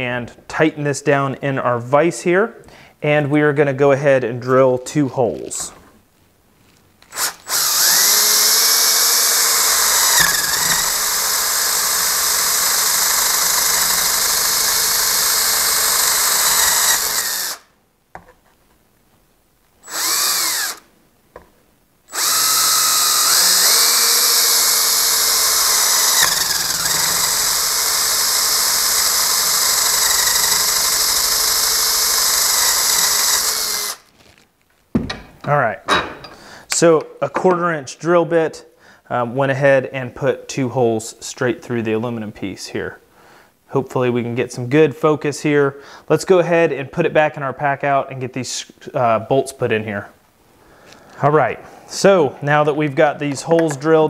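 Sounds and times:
cordless drill boring through metal: 0:07.1 - 0:17.7, 0:19.8 - 0:20.9, 0:22.1 - 0:34.1.

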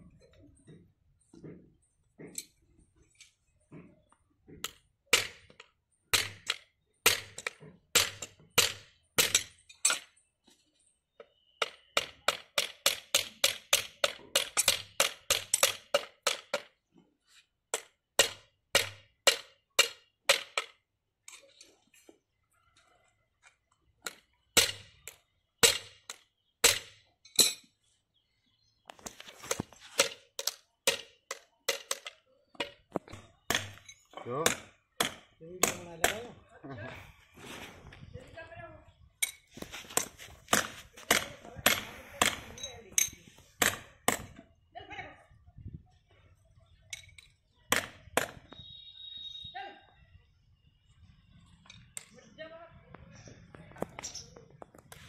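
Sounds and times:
hammer striking metal horseshoes: 0:04.6 - 0:10.1, 0:11.6 - 0:16.7, 0:17.8 - 0:21.4, 0:24.0 - 0:27.7, 0:29.9 - 0:36.3, 0:39.2 - 0:44.4.

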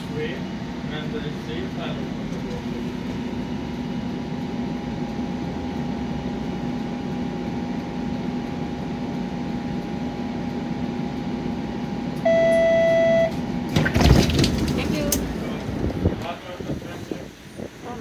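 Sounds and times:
streetcar interior hum: 0:00.0 - 0:18.0
loud electronic beep: 0:12.2 - 0:13.4
clatter of knocks: 0:13.7 - 0:15.0.

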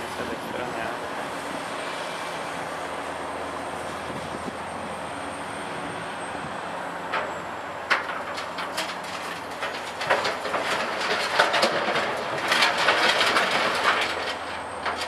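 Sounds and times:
excavator diesel engine running: 0:00.0 - 0:15.0
rubble chunks knocking: 0:08.2 - 0:15.0.

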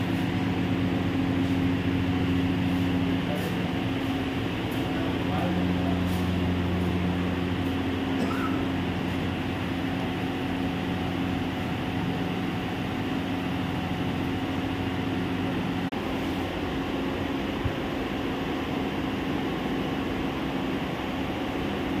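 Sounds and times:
machinery hum: 0:00.0 - 0:22.0.

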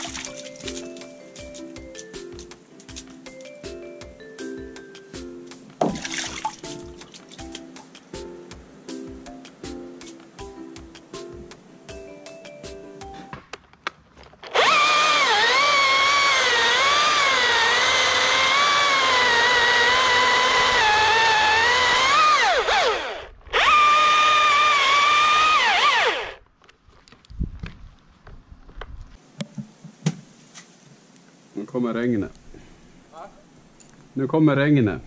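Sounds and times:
chainsaw cutting: 0:14.5 - 0:26.4.

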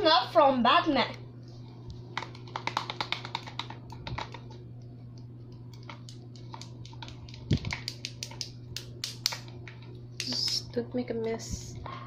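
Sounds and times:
stick clicking against plastic cup: 0:02.2 - 0:04.4, 0:05.7 - 0:09.5
wooden stick stirring slime: 0:05.5 - 0:08.4.

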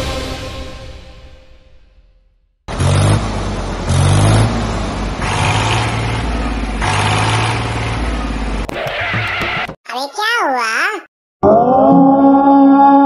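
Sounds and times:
small tractor engine running: 0:02.7 - 0:08.7.

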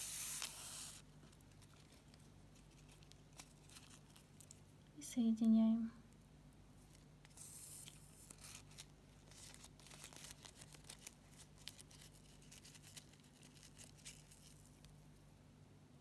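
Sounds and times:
short hiss: 0:00.0 - 0:01.0
ribbon rustling: 0:00.0 - 0:04.7, 0:06.8 - 0:15.0
low steady hum: 0:00.0 - 0:16.0.

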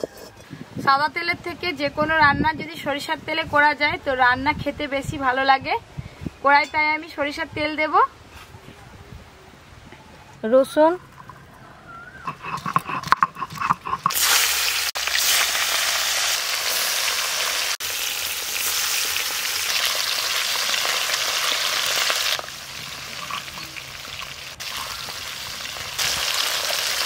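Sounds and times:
fish sizzling in oil: 0:14.1 - 0:27.0.

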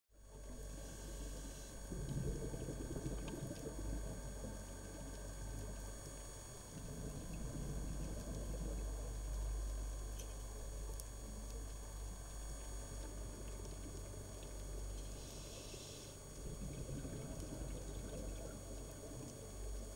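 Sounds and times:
faint high whine: 0:00.2 - 0:19.9
underwater bubbling rumble: 0:00.3 - 0:15.5, 0:16.2 - 0:19.9
deep hum: 0:00.3 - 0:19.9.

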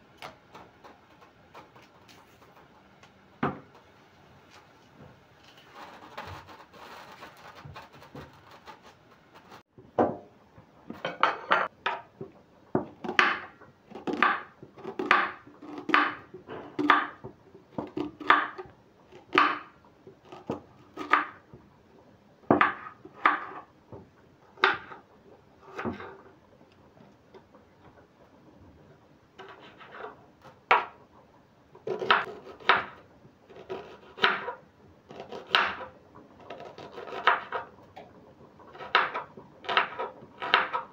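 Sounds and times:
knife chopping on wooden board: 0:12.8 - 0:16.2, 0:31.9 - 0:33.0, 0:33.6 - 0:34.6, 0:35.2 - 0:35.9, 0:38.8 - 0:40.8.

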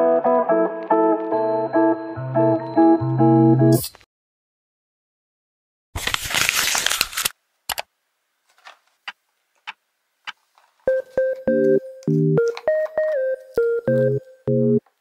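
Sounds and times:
packaging crinkling: 0:06.0 - 0:07.4
faint clicks and taps: 0:08.5 - 0:14.1
keyboard music with steady beat: 0:10.9 - 0:14.8.

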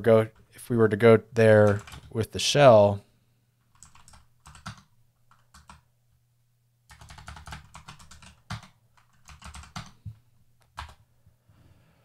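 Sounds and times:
keyboard keys clicking: 0:01.7 - 0:02.1, 0:03.7 - 0:05.8, 0:06.9 - 0:10.0, 0:10.6 - 0:11.0.

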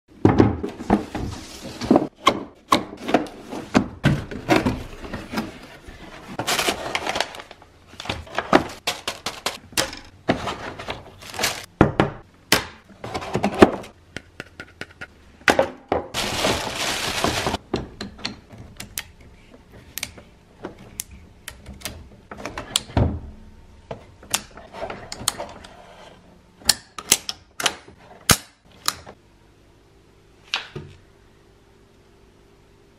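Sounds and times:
plastic bag rustling: 0:04.8 - 0:09.6, 0:10.3 - 0:11.7, 0:16.2 - 0:17.6.

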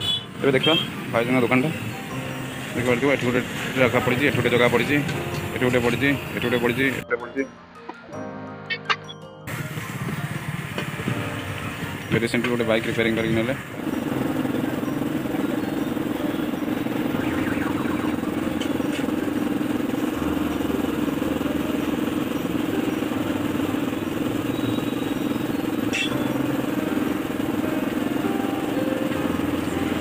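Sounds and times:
motor droning: 0:13.7 - 0:30.0.

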